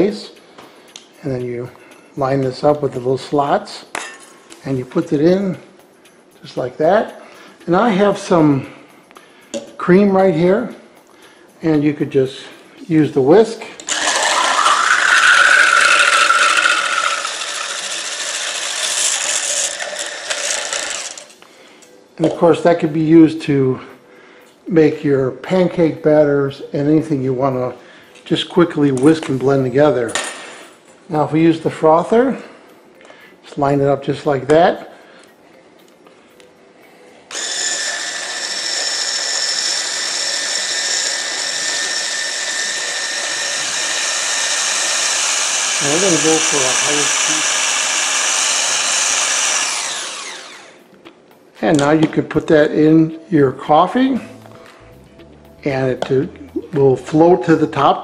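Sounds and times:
hand blender whirring: 13.9 - 21.4, 37.3 - 50.8.

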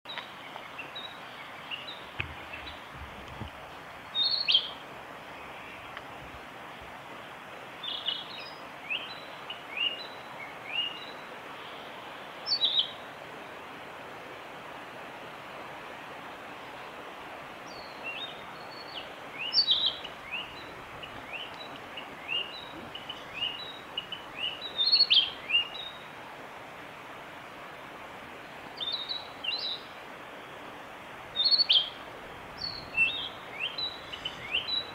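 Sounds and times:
background hiss: 0.1 - 34.9
bird singing whistled notes: 4.1 - 4.8, 7.8 - 11.9, 12.5 - 13.0, 17.7 - 26.0, 28.8 - 29.8, 31.4 - 32.0, 32.6 - 34.9.

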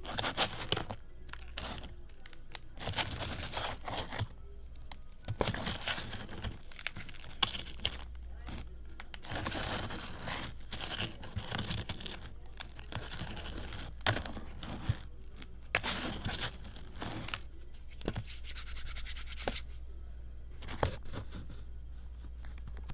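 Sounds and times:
fingers crunching dry crumbles: 0.0 - 19.8.

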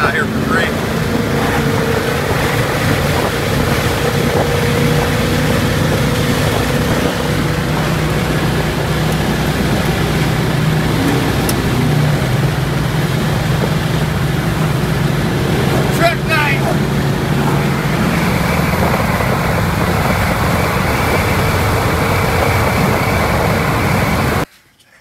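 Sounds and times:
engine and tyre drone: 0.0 - 24.5
road and wind noise: 0.0 - 24.5.

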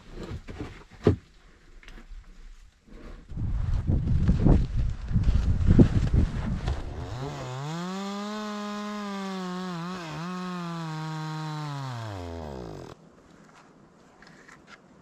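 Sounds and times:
power saw cutting wood: 6.8 - 13.0.

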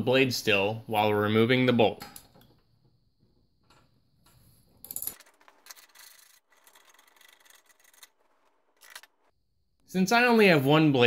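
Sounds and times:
metal rubbing and scraping: 5.1 - 9.4.

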